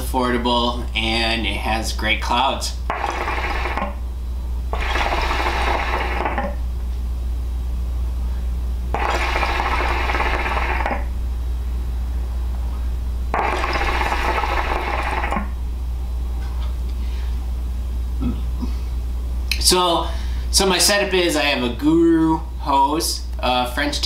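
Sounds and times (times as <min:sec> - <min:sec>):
hookah water bubbling: 0:09.0 - 0:11.0, 0:13.4 - 0:15.5.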